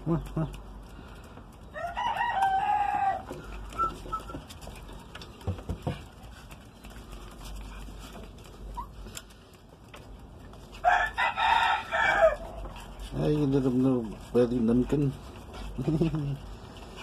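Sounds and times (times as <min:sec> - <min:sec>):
rooster crowing: 0:01.7 - 0:03.4, 0:10.8 - 0:12.6.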